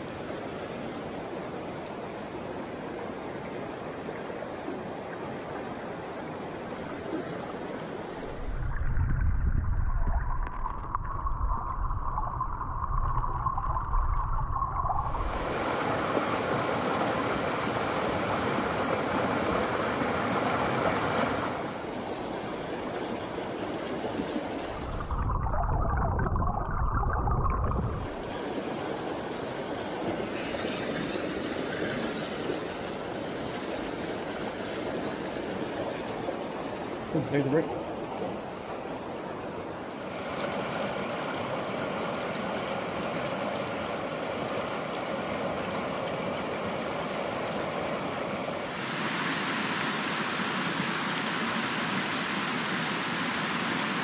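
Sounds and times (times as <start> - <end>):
stream rushing over rocks: 10.3 - 22.8, 39.8 - 54.0.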